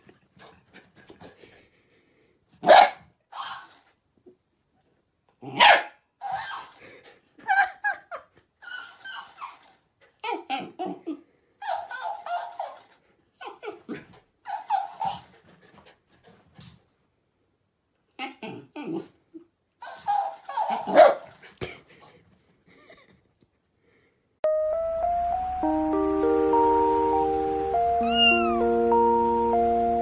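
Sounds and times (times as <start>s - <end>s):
dog barking: 2.6s - 3.7s, 5.5s - 6.6s, 19.8s - 21.3s
squeaky toy voice: 28.0s - 28.6s.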